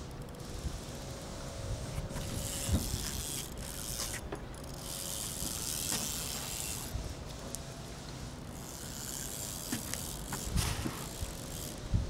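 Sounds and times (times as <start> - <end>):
fishing reel gears whirring: 0.0 - 12.0.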